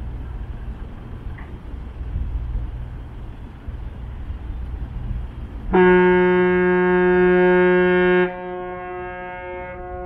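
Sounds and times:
ship's horn blast: 5.7 - 10.0.

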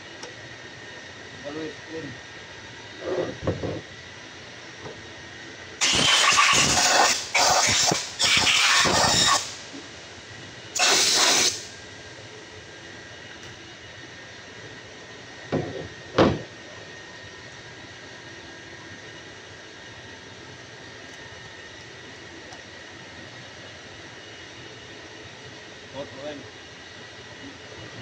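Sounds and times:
air blow gun hissing bursts: 5.8 - 9.7, 10.8 - 11.7.

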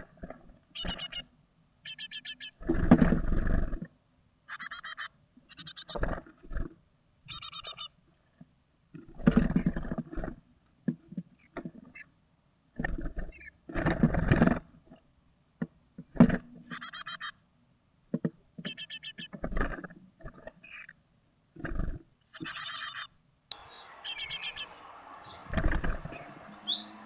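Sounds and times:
rapid high chick calls: 4.5 - 6.0, 7.3 - 7.9, 22.3 - 27.0
birds flapping wings in box: 23.6 - 27.0.

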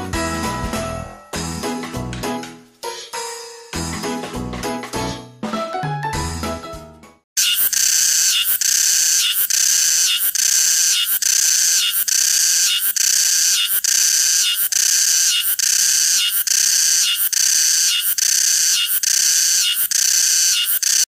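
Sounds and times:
cicada buzzing: 7.4 - 21.0.

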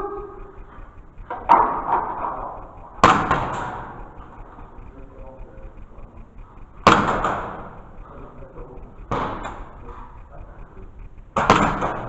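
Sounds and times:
airsoft gun shots echoing: 1.3 - 4.0, 6.8 - 7.8, 9.1 - 9.8, 11.4 - 12.0.

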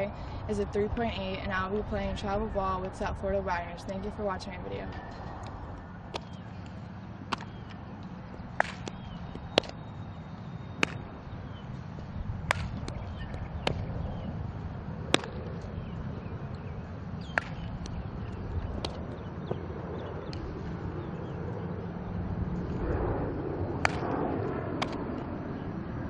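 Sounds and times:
low wind rumble: 0.0 - 26.0
balls smacking into leather gloves: 6.1 - 7.8, 8.6 - 9.8, 10.8 - 11.0, 12.5 - 13.9, 15.1 - 15.7, 17.2 - 18.0, 18.8 - 19.1, 24.8 - 25.0.

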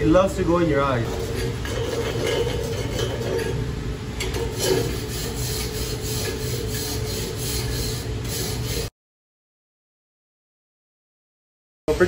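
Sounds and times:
slag scraped off weld: 4.3 - 7.8.

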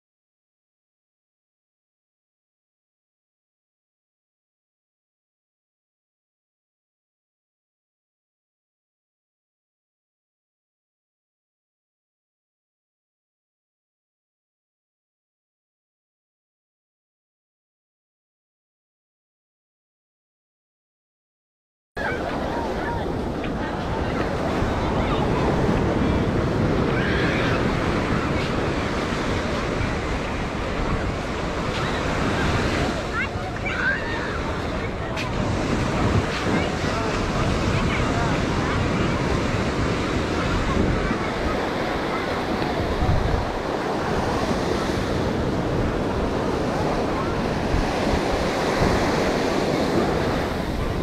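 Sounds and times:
ocean surf on sandy beach: 22.0 - 51.0
wind rumbling on microphone: 22.0 - 51.0.

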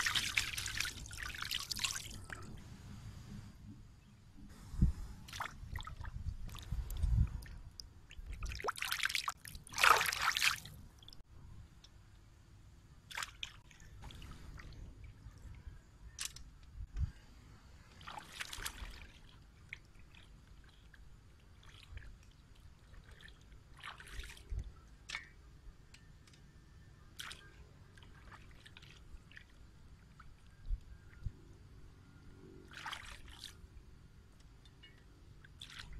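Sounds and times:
water splashing: 0.0 - 2.4, 8.2 - 11.2, 17.9 - 20.9.

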